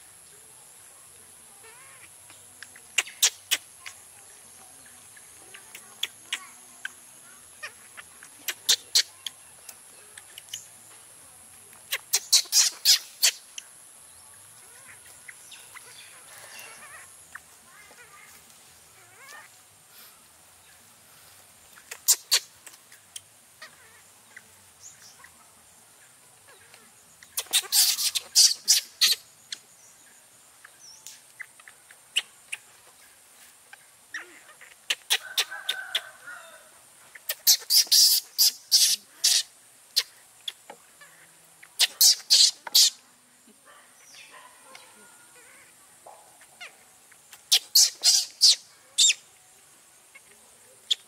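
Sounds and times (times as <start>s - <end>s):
faint steady high hiss: 0.0s - 51.0s
bird chirping: 0.1s - 43.1s, 43.7s - 51.0s.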